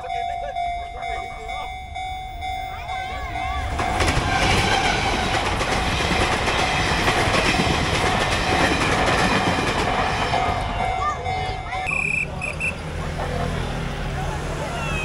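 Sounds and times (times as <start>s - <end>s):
train running over rails: 0.0s - 15.0s.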